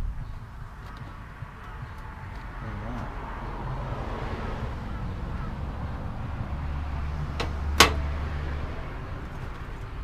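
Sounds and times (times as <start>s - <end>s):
sharp metal knocks: 7.4s - 8.1s.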